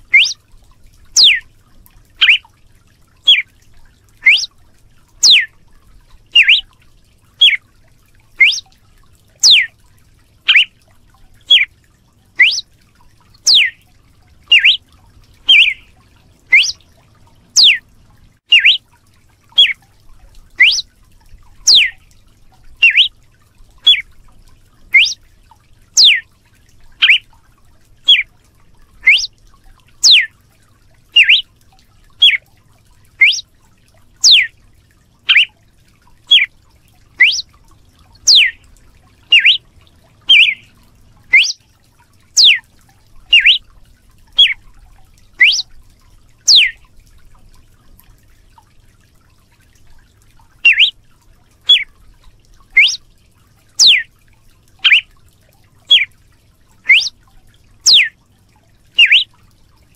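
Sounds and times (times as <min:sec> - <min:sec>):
bird whistled calls: 0:00.0 - 0:00.4, 0:01.2 - 0:01.4, 0:02.2 - 0:02.4, 0:03.2 - 0:03.5, 0:04.2 - 0:04.5, 0:05.2 - 0:05.5, 0:06.4 - 0:06.7, 0:07.4 - 0:07.6, 0:08.4 - 0:08.7, 0:09.4 - 0:09.7, 0:10.5 - 0:10.7, 0:11.4 - 0:11.7, 0:12.4 - 0:12.6, 0:13.4 - 0:13.8, 0:14.5 - 0:14.8, 0:15.5 - 0:15.9, 0:16.5 - 0:16.8, 0:17.5 - 0:17.8, 0:18.5 - 0:18.8, 0:19.6 - 0:19.8, 0:20.6 - 0:20.9, 0:21.7 - 0:22.0, 0:22.8 - 0:23.1, 0:23.8 - 0:24.0, 0:24.9 - 0:25.2, 0:26.0 - 0:26.2, 0:27.0 - 0:27.2, 0:28.1 - 0:28.3, 0:29.0 - 0:29.3, 0:30.0 - 0:30.3, 0:31.2 - 0:31.4, 0:32.2 - 0:32.4, 0:33.2 - 0:33.4, 0:34.2 - 0:34.5, 0:35.3 - 0:35.5, 0:36.3 - 0:36.5, 0:37.2 - 0:37.5, 0:38.3 - 0:38.6, 0:39.3 - 0:39.6, 0:40.3 - 0:40.7, 0:41.3 - 0:41.6, 0:42.4 - 0:42.6, 0:43.3 - 0:43.6, 0:44.4 - 0:44.6, 0:45.4 - 0:45.7, 0:46.5 - 0:46.8, 0:50.6 - 0:50.9, 0:51.7 - 0:51.9, 0:52.8 - 0:53.0, 0:53.8 - 0:54.1, 0:54.8 - 0:55.1, 0:55.9 - 0:56.1, 0:56.9 - 0:57.2, 0:57.9 - 0:58.1, 0:59.0 - 0:59.3.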